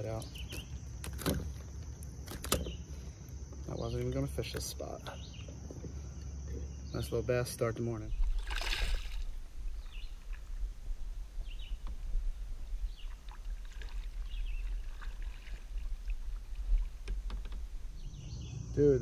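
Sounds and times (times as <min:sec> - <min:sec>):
small water sounds: 0:00.0 - 0:18.2
steady low rumble: 0:09.1 - 0:13.0, 0:15.7 - 0:19.0
faint knocks on kayak hull: 0:16.6 - 0:17.7.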